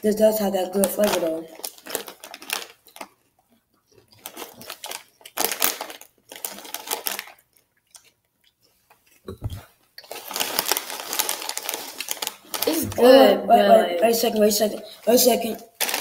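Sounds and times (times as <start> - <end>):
chip bag crinkling: 0.8 - 3.3, 4.0 - 8.2, 10.0 - 13.0, 15.7 - 16.0
chips crunching: 0.8 - 3.3, 4.0 - 8.2, 10.0 - 13.0, 15.7 - 16.0
low thump: 9.3 - 9.6.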